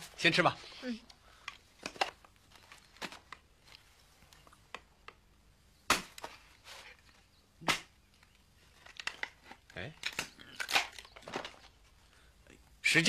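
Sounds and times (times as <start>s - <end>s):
sharp cracks and knocks: 5.8s - 6.5s, 7.6s - 11.8s.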